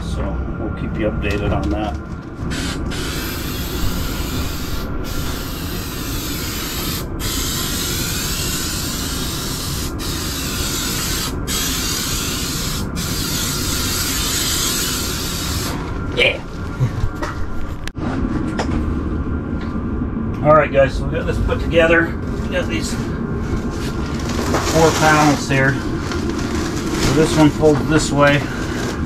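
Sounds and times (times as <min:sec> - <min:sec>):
aerosol can hissing: 0:02.6 - 0:15.8.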